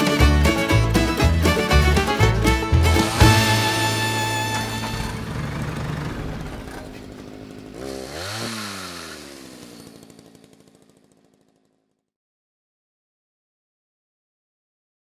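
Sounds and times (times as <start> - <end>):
outro music sting: 1.4 - 5.8
engine-like rev: 2.4 - 10.6.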